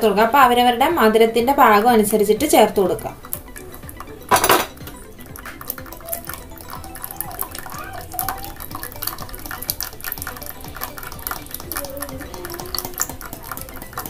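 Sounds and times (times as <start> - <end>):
syrup dripping into metal pan: 3.2 - 14.0.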